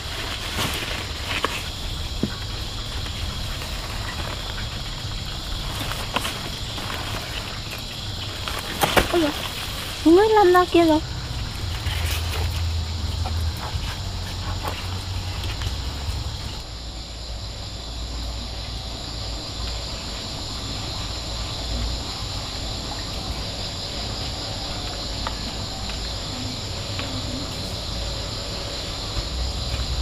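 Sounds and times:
constant high hiss: 0.0s - 30.0s
low rumble: 11.0s - 18.1s.

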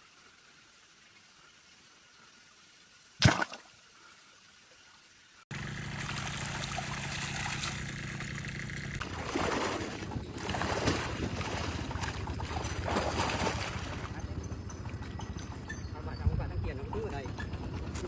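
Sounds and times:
shallow water splashing: 3.2s - 3.8s, 5.7s - 14.2s
steady low hum: 5.5s - 18.0s.

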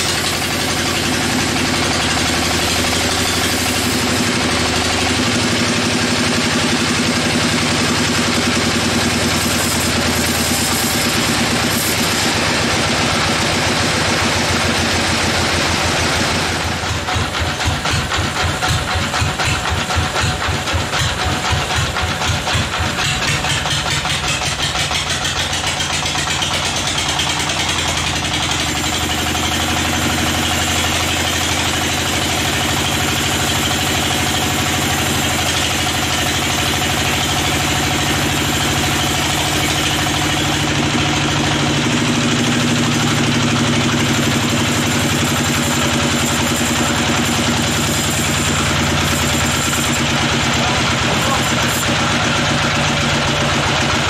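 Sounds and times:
band saw motor hum: 0.0s - 20.4s, 21.0s - 54.0s
saw blade hissing in wood: 2.1s - 4.8s, 9.0s - 12.9s, 42.0s - 52.4s.

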